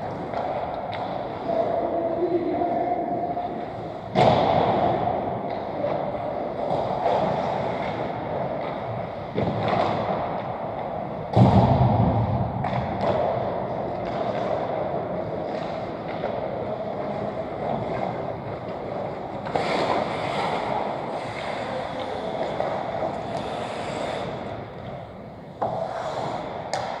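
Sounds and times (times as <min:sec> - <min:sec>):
arena noise hum: 0:00.0 - 0:27.0
skates scraping on ice: 0:03.3 - 0:11.4, 0:12.7 - 0:27.0
sticks and pucks knocking: 0:12.6 - 0:27.0.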